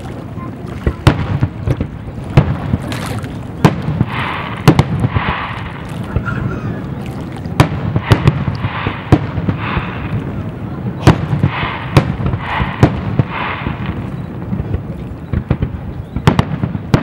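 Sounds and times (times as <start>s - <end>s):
firework shells bursting: 3.6s - 6.3s, 7.6s - 10.3s, 11.0s - 17.0s.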